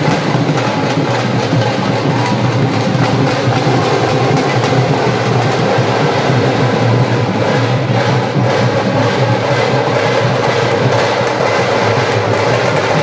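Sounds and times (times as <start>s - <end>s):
dhol drums beaten with sticks: 0.0s - 13.0s.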